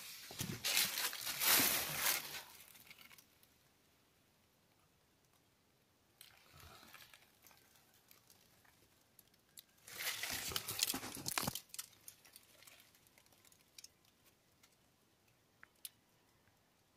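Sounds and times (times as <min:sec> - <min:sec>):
dry leaves rustling and crunching: 0:00.0 - 0:03.2, 0:09.8 - 0:13.4.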